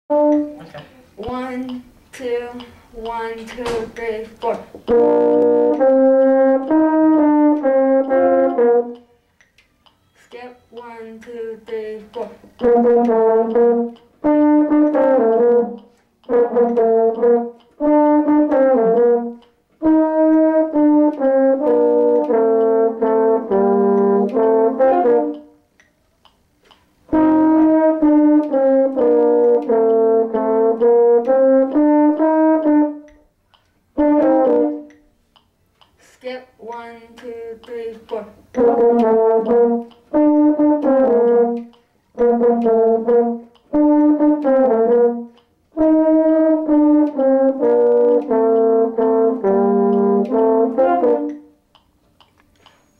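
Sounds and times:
french horns playing a duet: 0.1 - 0.9, 3.6 - 9.2, 10.8 - 25.6, 27.1 - 33.2, 33.9 - 35.0, 37.9 - 51.6.

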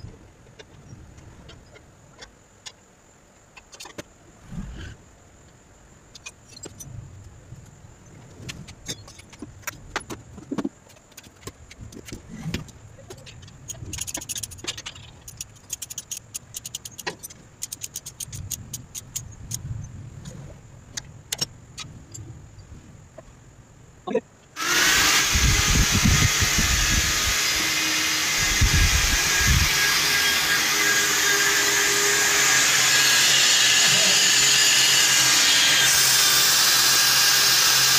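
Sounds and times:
ratchet wrench clicking: 13.6 - 19.6
electric drill whining: 24.6 - 37.9.

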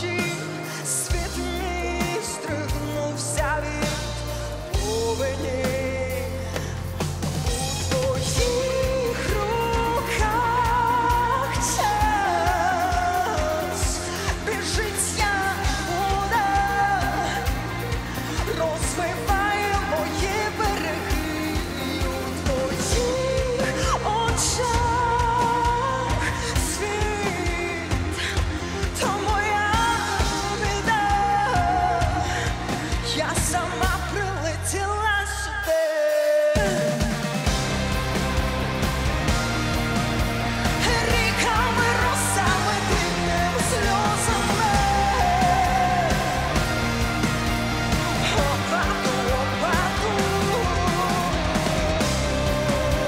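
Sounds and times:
electric guitars: 0.0 - 34.9, 36.4 - 53.0
bass guitar: 0.0 - 35.7, 36.6 - 53.0
full band with drum beat: 0.0 - 53.0
woman singing pop-rock song: 0.0 - 53.0
drum beat: 36.6 - 53.0.

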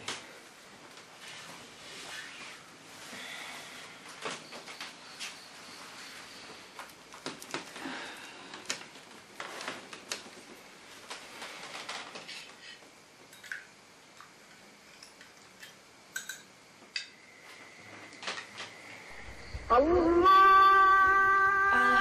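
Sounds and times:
teaspoon clinking in glass cup: 16.2 - 16.5.

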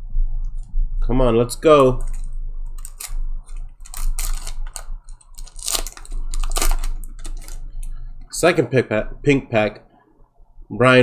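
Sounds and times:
low steady hum: 0.0 - 11.0
card wrapper crinkling and tearing: 2.0 - 8.0.

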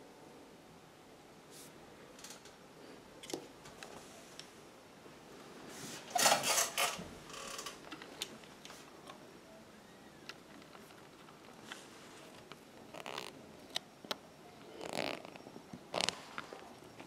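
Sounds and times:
metal scraping and rattling: 6.1 - 7.7.

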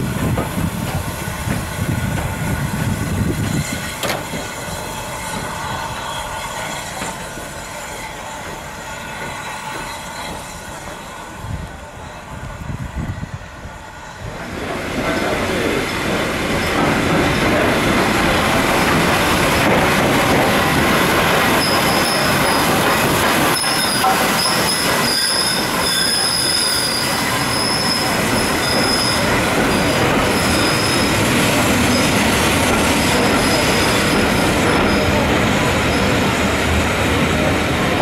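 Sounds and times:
train wheels rumbling on rails: 0.0 - 38.0
high wheel squeal: 3.4 - 11.4, 21.4 - 32.4, 33.0 - 35.2.

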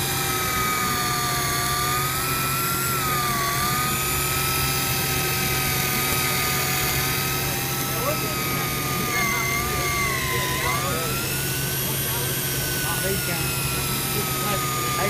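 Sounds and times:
fishing reel motor whining: 0.0 - 15.0
steady low hum: 0.0 - 15.0.

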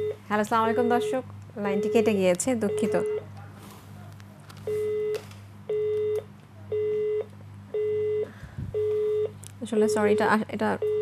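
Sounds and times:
telephone busy tone: 0.0 - 1.2, 4.7 - 9.4.

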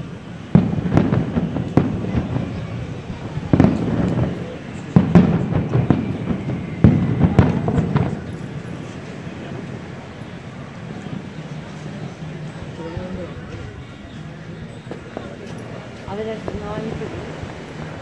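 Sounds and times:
firework shells bursting: 0.5 - 10.5.

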